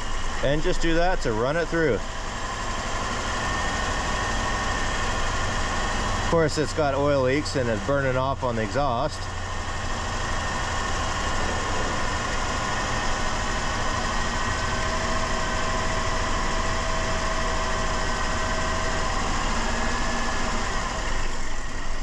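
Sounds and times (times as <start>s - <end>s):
car engine idling: 0.0s - 22.0s
steady vacuum whine: 0.0s - 22.0s.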